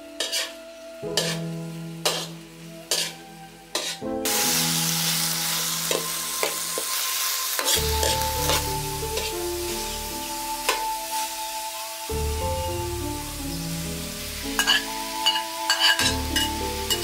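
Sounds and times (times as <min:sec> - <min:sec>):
background music: 0:00.0 - 0:17.0
metal ladle scraping a pan: 0:00.1 - 0:09.9, 0:14.6 - 0:17.0
beef sizzling in a wok: 0:00.1 - 0:17.0.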